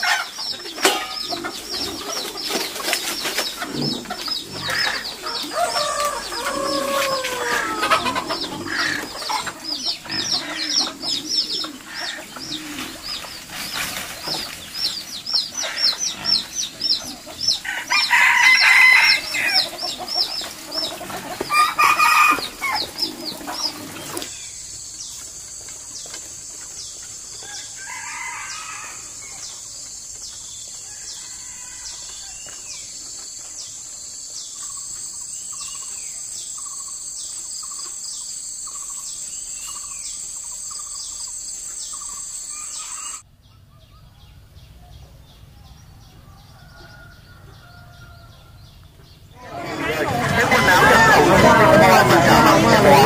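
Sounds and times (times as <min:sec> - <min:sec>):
chickens clucking: 0:00.0 - 0:53.0
rooster crowing: 0:04.6 - 0:09.5, 0:17.5 - 0:19.9, 0:21.4 - 0:22.9, 0:27.4 - 0:29.5, 0:30.8 - 0:32.5, 0:46.0 - 0:48.6, 0:49.4 - 0:53.0
high insect drone: 0:04.6 - 0:43.2.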